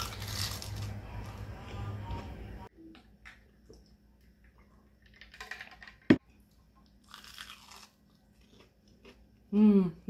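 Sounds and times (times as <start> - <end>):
crunch of biting fried food: 7.0 - 9.2.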